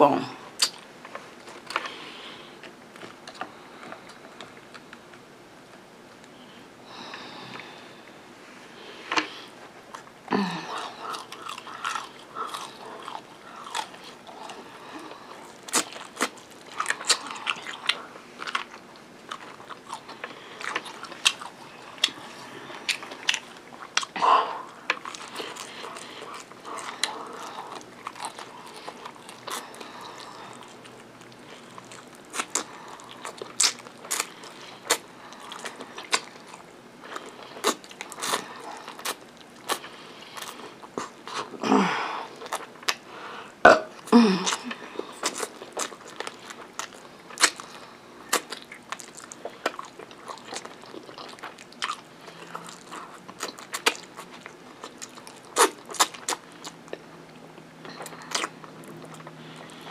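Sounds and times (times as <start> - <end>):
wet mouth sounds: 0.6 - 0.8
chewing crispy chicken: 9.0 - 41.6, 42.3 - 43.3, 44.0 - 59.9.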